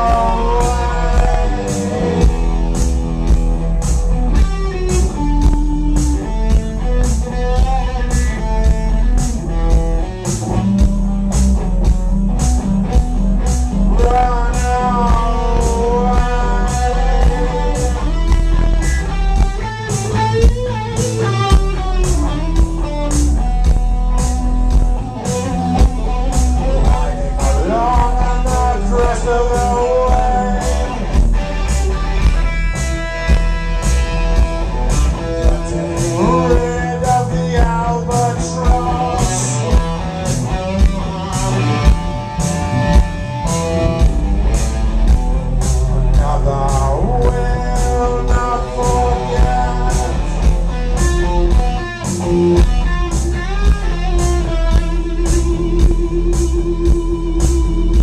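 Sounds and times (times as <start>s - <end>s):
man singing: 0.0s - 2.8s, 13.7s - 21.6s, 25.2s - 33.2s, 35.1s - 40.3s, 45.9s - 56.0s
deep bass line: 0.0s - 58.0s
electric guitar: 0.0s - 58.0s
live rock band playing: 0.0s - 58.0s
steady drum beat: 0.0s - 58.0s.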